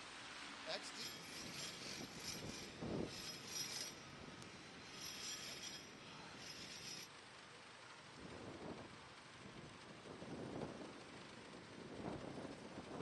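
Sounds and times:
distant traffic hum: 0.0 - 8.2
high-pitched squeals: 0.8 - 7.1
clinks: 0.9 - 7.1.

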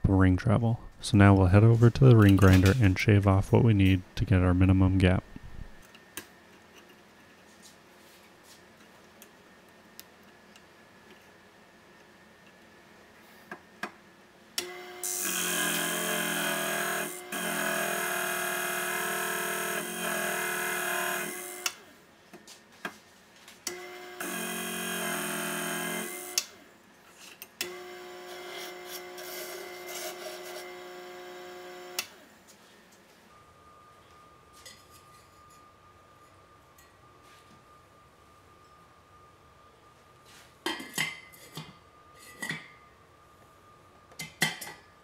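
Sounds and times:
grinder motor whine: 14.6 - 21.8, 23.7 - 26.6, 27.6 - 32.2.

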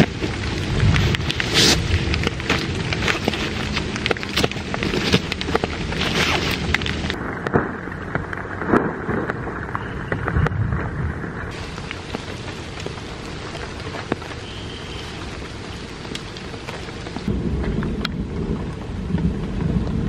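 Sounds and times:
nylon tent rustling: 0.0 - 7.2, 11.5 - 17.3
steady rain: 0.0 - 20.0.

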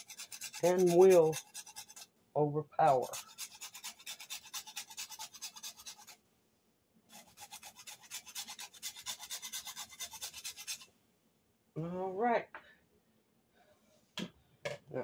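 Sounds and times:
nutmeg scraping on metal grater: 0.0 - 2.1, 2.8 - 6.2, 7.1 - 10.9.

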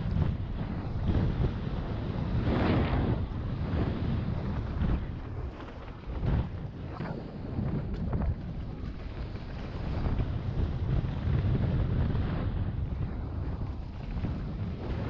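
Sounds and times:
wind buffeting microphone: 0.0 - 15.0
tyres rumbling over dirt trail: 7.5 - 15.0.

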